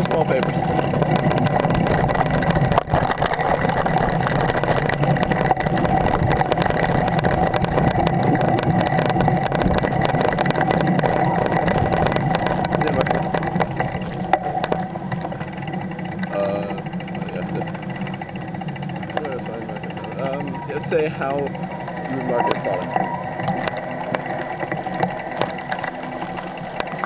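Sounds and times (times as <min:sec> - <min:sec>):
wind rumbling on microphone: 0:00.0 - 0:19.2
bicycle clicks and rattles: 0:00.0 - 0:27.0.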